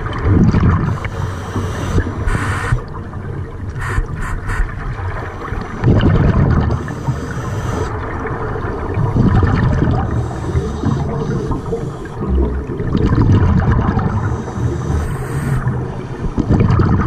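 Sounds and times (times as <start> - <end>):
air bubbling underwater: 0.0 - 1.1, 3.6 - 14.9, 15.6 - 17.0
diver breathing through regulator: 0.8 - 2.9, 3.8 - 4.8, 6.7 - 8.1, 9.2 - 12.4, 14.0 - 16.5.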